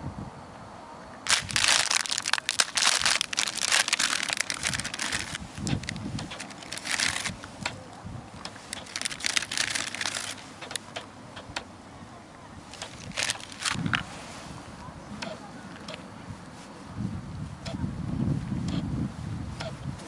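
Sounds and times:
dried noodles crunching: 1.3s - 7.5s, 8.6s - 10.8s, 12.7s - 14.0s
plastic packet crinkling: 1.3s - 7.5s, 8.7s - 10.5s, 12.7s - 14.0s.

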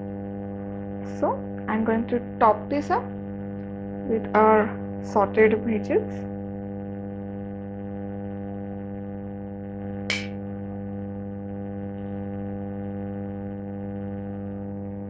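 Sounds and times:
electrical mains hum: 0.0s - 15.0s
sharp click: 10.1s - 10.3s.

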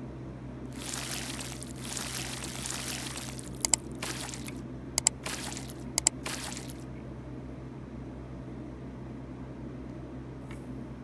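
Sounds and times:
flux sizzling under soldering iron: 0.8s - 6.8s
sharp double clicks: 3.6s - 6.8s.

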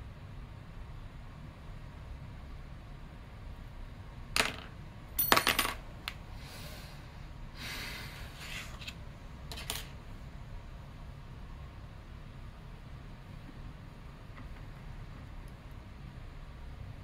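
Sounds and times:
metal tools clattering: 5.2s - 5.8s.

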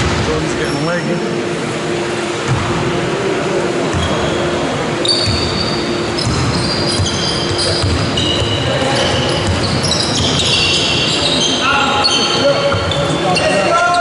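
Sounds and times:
sneakers squeaking: 3.8s - 14.0s
basketball dribbling thuds: 6.2s - 10.6s.

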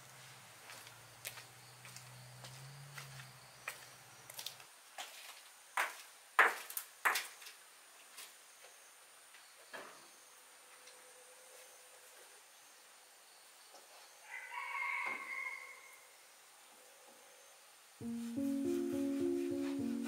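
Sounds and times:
footsteps: 0.6s - 6.6s.

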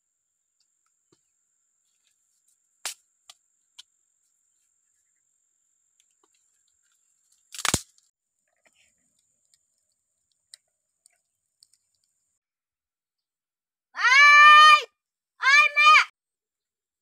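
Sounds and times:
dry stalks cracking: 7.4s - 8.0s.

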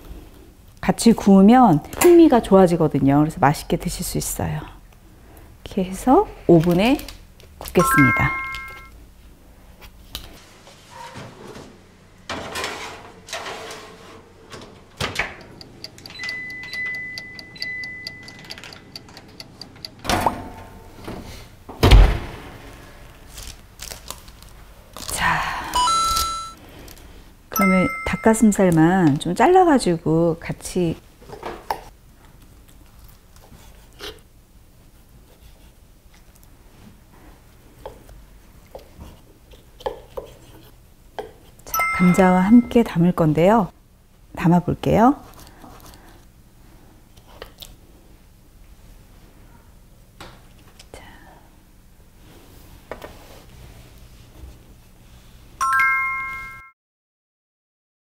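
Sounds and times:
steady beep tone: 7.8s - 8.9s, 27.6s - 28.4s, 41.7s - 42.8s
baking tray scraping into oven: 10.8s - 14.7s
oven door shutting: 12.3s - 17.1s, 20.0s - 22.8s.

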